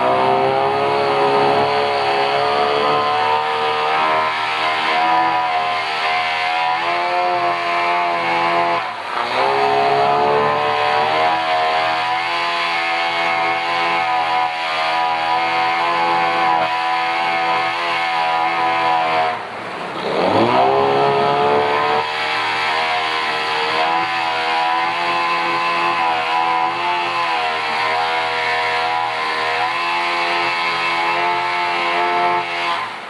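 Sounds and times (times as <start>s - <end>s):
outboard motor running: 0.0s - 5.9s.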